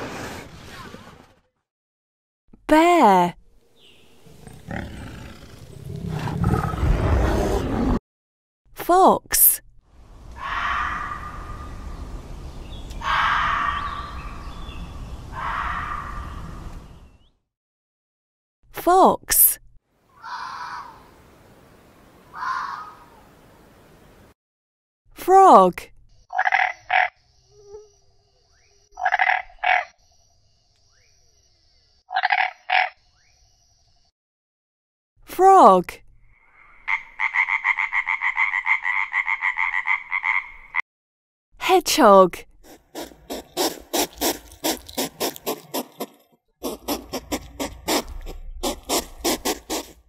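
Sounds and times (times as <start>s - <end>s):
frog croaking: 26.3s - 27.2s, 29.0s - 30.0s, 32.1s - 33.0s, 36.4s - 40.8s
hedgehog sniffing puffs: 42.6s - 50.0s.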